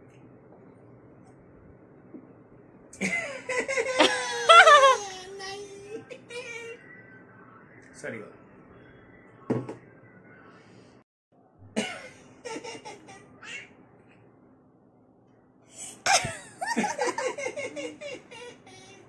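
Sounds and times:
toddler laughing: 3.7s - 5.8s, 16.1s - 19.0s.

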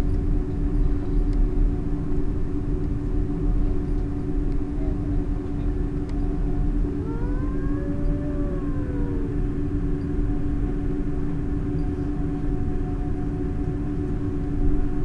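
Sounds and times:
jet engines heard in cabin: 0.0s - 15.0s
rising and falling tone: 7.1s - 9.4s.

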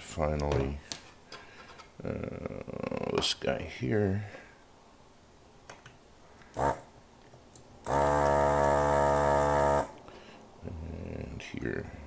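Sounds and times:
desoldering gun vacuum pump: 7.9s - 9.9s.

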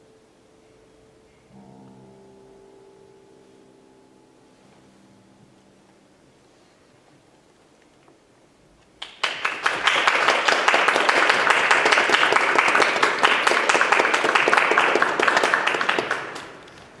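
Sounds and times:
audience applauding: 9.0s - 17.0s.

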